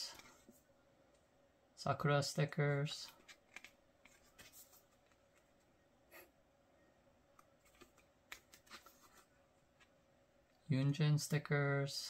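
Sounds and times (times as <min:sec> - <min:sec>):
pages turning with crinkles: 0:03.1 - 0:05.6, 0:07.6 - 0:09.9
paper rustling: 0:03.1 - 0:05.6, 0:07.6 - 0:09.9.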